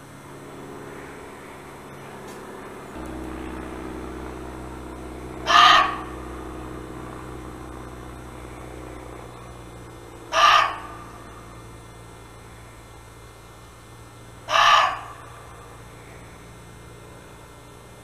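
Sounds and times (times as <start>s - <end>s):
low hum: 0.0s - 18.0s
deer barking: 3.0s - 11.8s, 14.4s - 15.8s.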